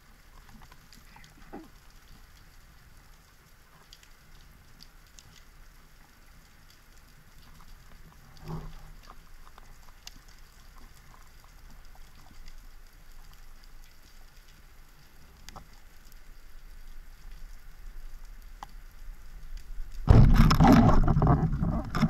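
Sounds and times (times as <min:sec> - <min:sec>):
faint underwater clicks and crackles: 0:00.0 - 0:22.0
short low-pitched underwater sound: 0:20.0 - 0:22.0.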